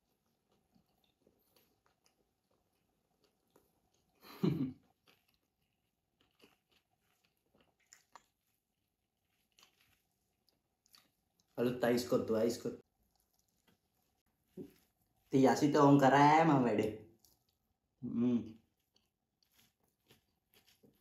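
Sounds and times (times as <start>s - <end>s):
person chewing with wet mouth clicks: 4.9s - 8.6s, 17.1s - 18.0s, 18.6s - 21.0s.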